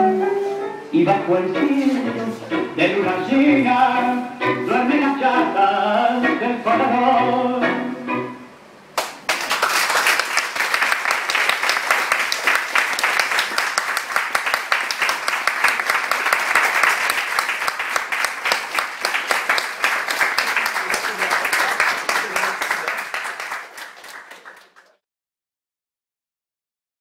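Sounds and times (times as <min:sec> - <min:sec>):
people clapping in applause: 0:09.0 - 0:25.0.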